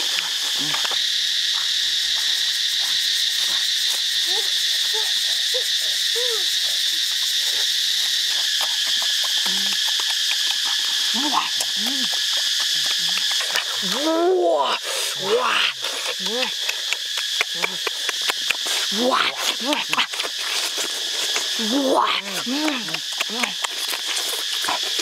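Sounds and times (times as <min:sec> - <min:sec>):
insects buzzing chorus: 0:00.0 - 0:25.0.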